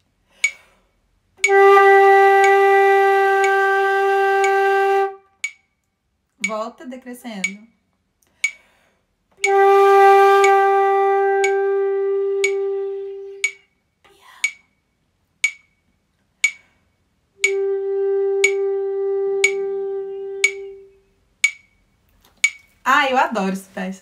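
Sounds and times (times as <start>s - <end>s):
person breathing: 0.2s - 1.0s, 8.2s - 9.2s, 16.4s - 17.0s
metronome clicking: 0.3s - 0.8s, 1.4s - 8.8s, 9.4s - 13.8s, 14.4s - 16.7s, 17.4s - 22.8s
flute holding long note: 1.4s - 5.4s, 9.4s - 13.4s, 17.4s - 21.0s.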